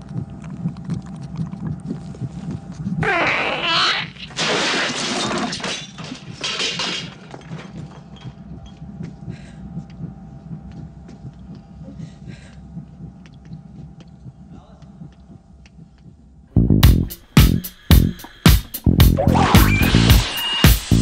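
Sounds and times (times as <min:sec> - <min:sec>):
creature screeching: 0:03.0 - 0:04.4.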